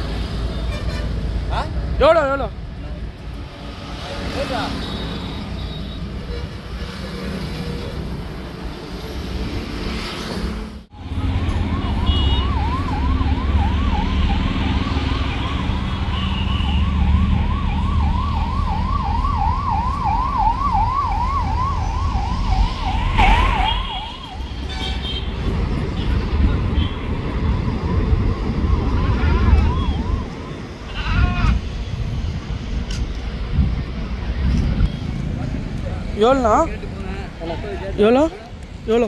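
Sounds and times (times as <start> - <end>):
road traffic rumble: 0.0 - 39.0
siren yelping: 11.2 - 24.5, 27.5 - 31.6.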